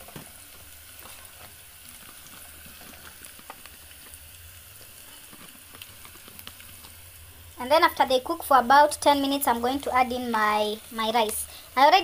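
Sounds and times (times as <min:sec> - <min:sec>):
onions sizzling in oil: 0:00.0 - 0:12.0.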